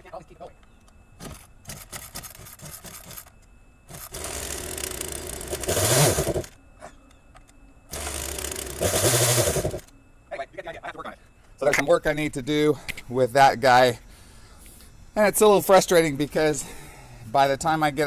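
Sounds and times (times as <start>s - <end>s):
chainsaw pull-start engine bursts: 1.2s - 3.3s, 3.9s - 6.6s, 7.9s - 9.9s.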